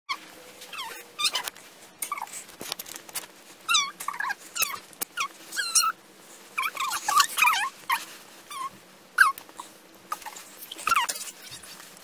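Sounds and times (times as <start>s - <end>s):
high-pitched whines and yelps: 0.1s - 2.4s, 3.7s - 6.0s, 6.6s - 11.8s.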